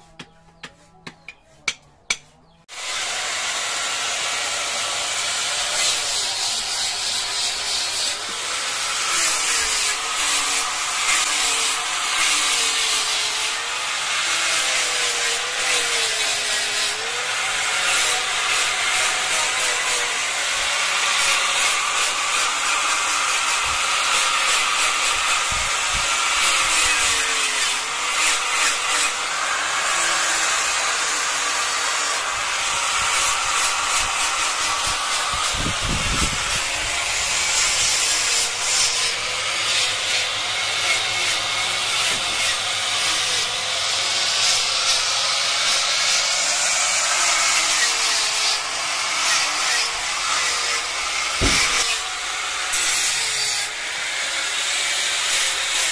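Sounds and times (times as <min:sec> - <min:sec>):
angle grinder cutting wood: 0:00.0 - 0:55.9.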